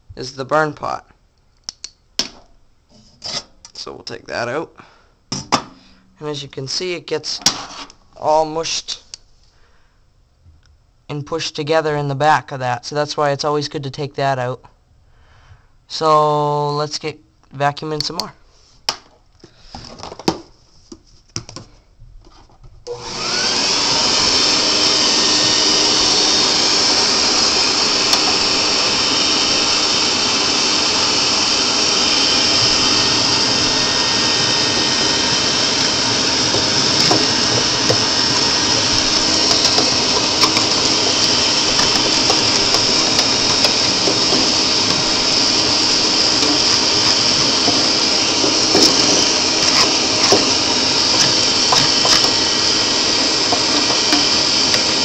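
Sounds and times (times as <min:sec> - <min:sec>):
sharp clicks: 0:01.6 - 0:02.0
vacuum cleaner running: 0:22.9 - 0:55.0.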